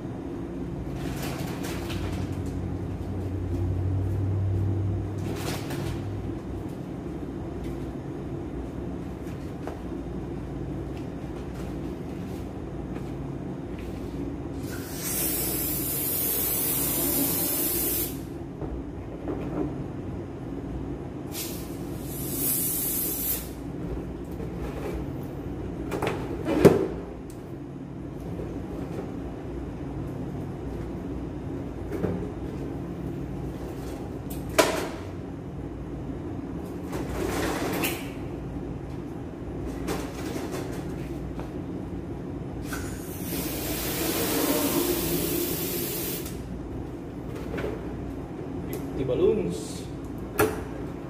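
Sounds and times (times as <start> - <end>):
steady low hum: 0.0 - 51.0
helium hissing from valve: 14.7 - 18.2, 21.4 - 23.5, 42.9 - 46.4.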